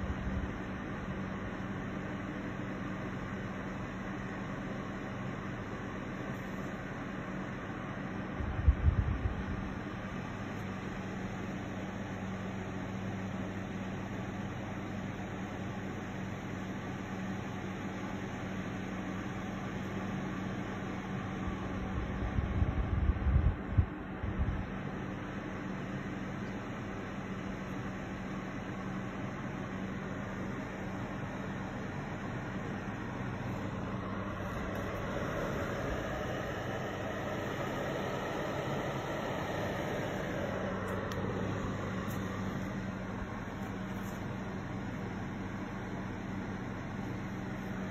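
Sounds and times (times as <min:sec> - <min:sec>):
fan heater air rush: 0:00.0 - 0:47.9
low constant hum: 0:00.0 - 0:47.9
low motor hum: 0:30.1 - 0:47.9.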